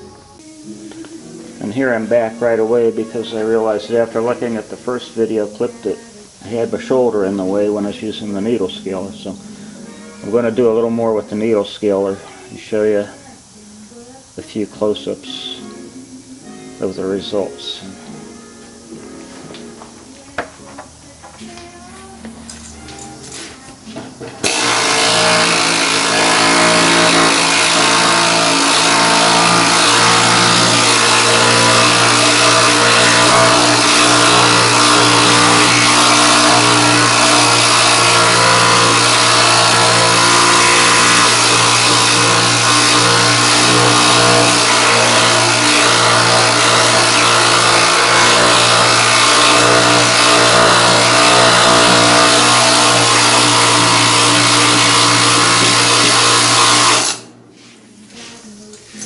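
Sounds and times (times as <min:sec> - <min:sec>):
needle scaler hammering: 0:23.9 - 0:57.3.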